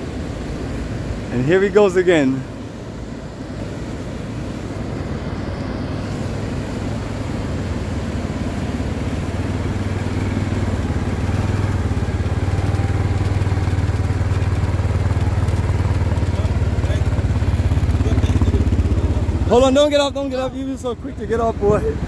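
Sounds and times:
quad bike engine running: 6.1s - 22.0s.

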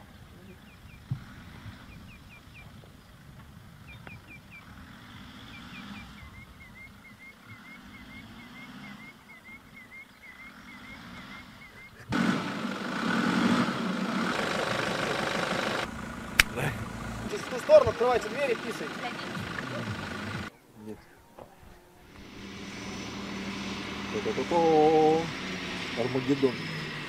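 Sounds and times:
small bird chirping: 0.0s - 12.1s
low vehicle engine rumble: 0.0s - 27.0s.

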